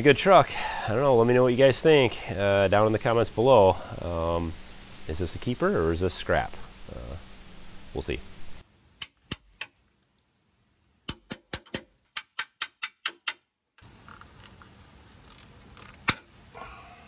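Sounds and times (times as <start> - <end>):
steady background hiss: 0.0 - 12.6.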